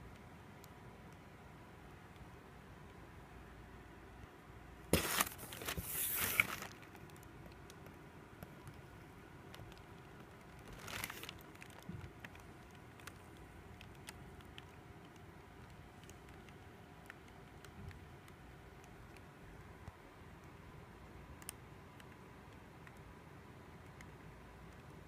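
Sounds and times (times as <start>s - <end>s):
paper leaflets rustling: 4.9s - 6.9s, 10.7s - 11.4s
light paper ticks: 5.5s - 20.7s.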